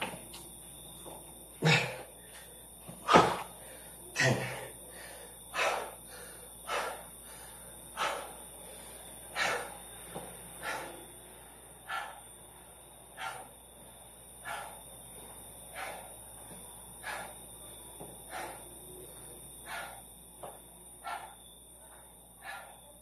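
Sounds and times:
man gasping for breath: 1.6s - 9.8s.

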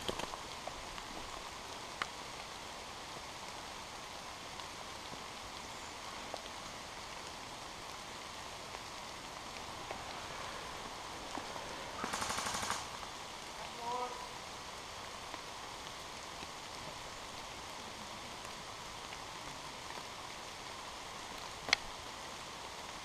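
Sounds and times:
faint clicks: 0.0s - 2.2s, 21.4s - 21.9s
rain in woodland: 0.0s - 23.0s
rapid burst of shots: 12.0s - 13.0s.

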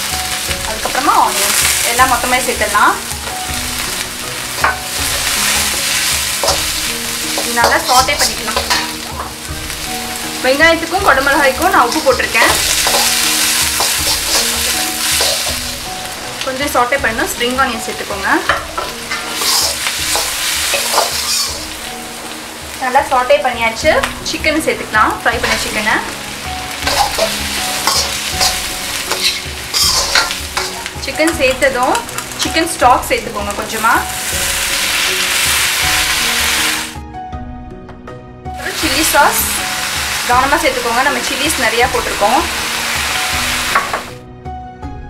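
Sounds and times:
vegetables sizzling in hot oil: 0.0s - 37.0s, 38.6s - 44.2s
metal spatula scraping a wok: 3.8s - 10.3s, 11.0s - 15.8s, 18.5s - 21.8s, 25.4s - 26.1s, 26.7s - 32.3s.

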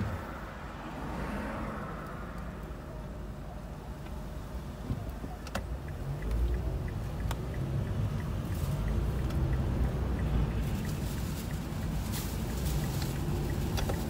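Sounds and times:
road vehicle rumble: 0.0s - 14.0s
faint rapid ticking: 5.1s - 14.0s.

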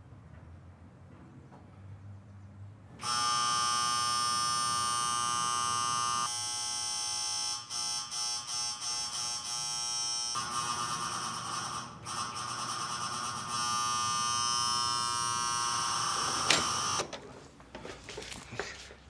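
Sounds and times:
electric doorbell buzzer: 3.0s - 17.1s.

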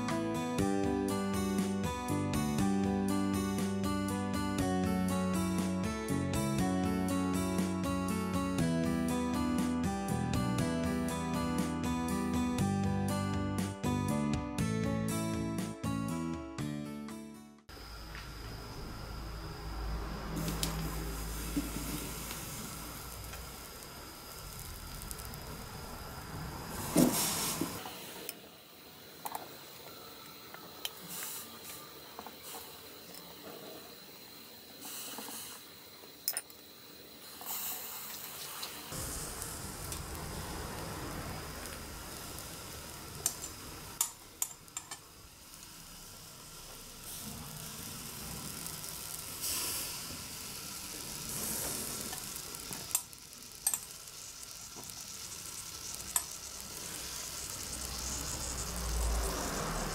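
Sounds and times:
chestnuts sizzling on a grill: 17.7s - 59.9s
metal tongs clicking on grill: 52.9s - 54.0s.

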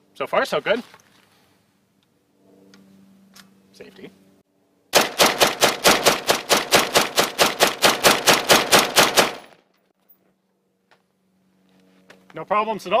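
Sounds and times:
rifle firing rapid shots: 5.0s - 9.6s.

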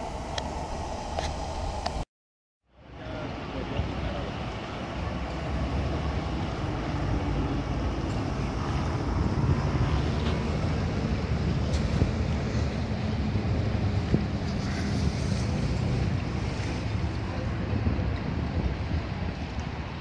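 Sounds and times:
wind noise on microphone: 4.8s - 20.0s.

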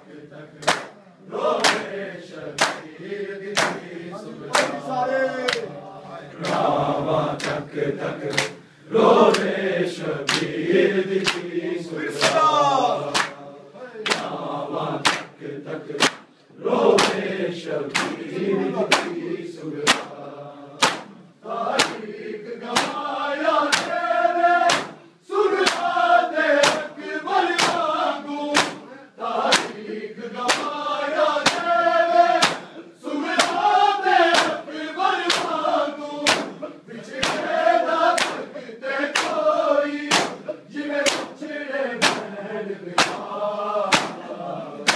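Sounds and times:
men chanting in unison: 0.0s - 44.9s
hands slapping chests: 0.6s - 1.0s, 1.6s - 1.9s, 2.5s - 3.9s, 4.5s - 4.8s, 5.4s - 5.7s, 6.4s - 6.8s, 7.4s - 8.6s, 9.2s - 9.6s, 10.2s - 10.6s, 11.2s - 13.4s, 14.0s - 14.4s, 15.0s - 16.3s, 17.0s - 17.3s, 17.9s - 19.2s, 19.8s - 20.2s, 20.8s - 25.0s, 25.6s - 29.8s, 30.4s - 32.7s, 33.3s - 41.4s, 42.0s - 42.3s, 42.9s - 43.3s, 43.9s - 44.9s.

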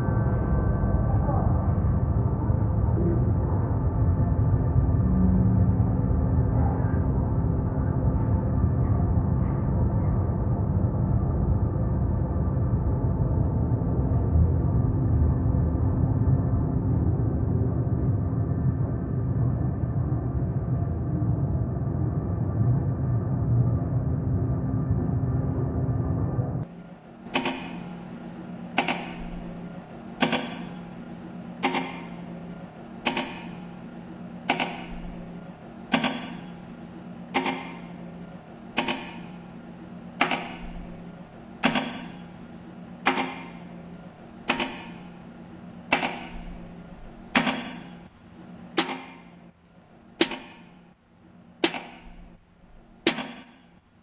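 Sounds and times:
low steady drone: 0.0s - 54.0s
sharp percussive click: 27.4s - 27.8s, 28.8s - 29.2s, 31.6s - 32.2s, 33.0s - 33.6s, 34.5s - 35.0s, 37.4s - 37.9s, 38.8s - 39.3s, 40.2s - 40.6s, 45.9s - 46.4s, 48.8s - 49.2s, 50.2s - 50.8s, 51.6s - 52.1s.

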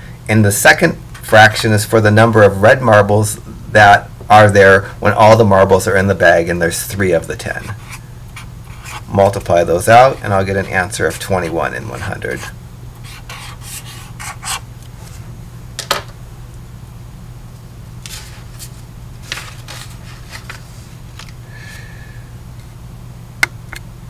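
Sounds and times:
steady low hum: 0.0s - 24.0s
pen scratching on paper: 7.6s - 9.4s, 10.0s - 14.6s.

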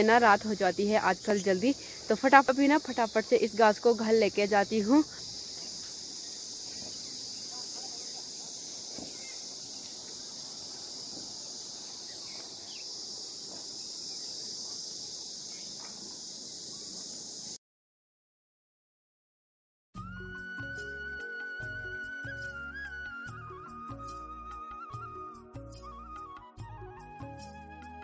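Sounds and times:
crickets chirping: 0.0s - 17.6s.

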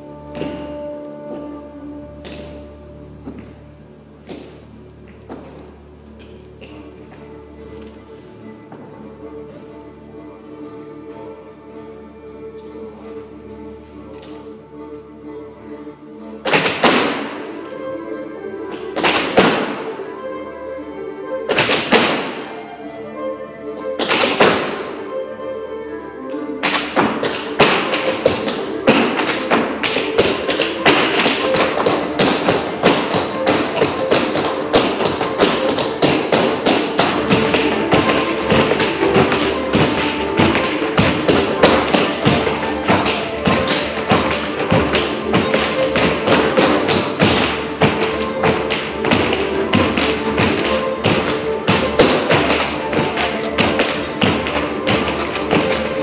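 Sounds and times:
music: 0.0s - 56.0s
dance shoes tapping on wooden floor: 0.2s - 7.2s, 16.4s - 17.4s, 18.7s - 19.9s, 21.5s - 22.4s, 24.0s - 24.9s, 26.6s - 56.0s.

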